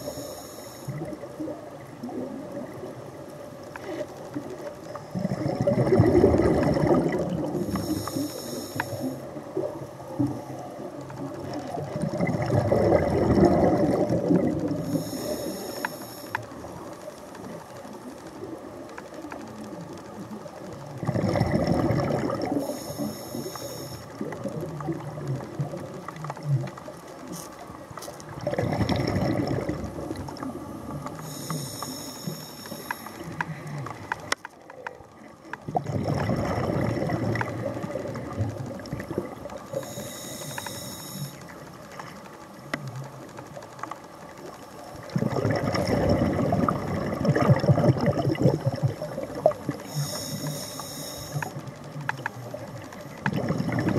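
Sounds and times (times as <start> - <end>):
air hissing through regulator: 0.0 - 1.0, 7.5 - 9.3, 14.8 - 16.5, 22.5 - 24.1, 31.2 - 33.5, 39.7 - 41.5, 49.8 - 51.6
exhaled bubbles gushing: 4.4 - 8.2, 9.0 - 15.5, 20.3 - 23.5, 24.1 - 26.8, 28.3 - 31.3, 35.2 - 40.1, 44.9 - 50.5, 52.4 - 53.9.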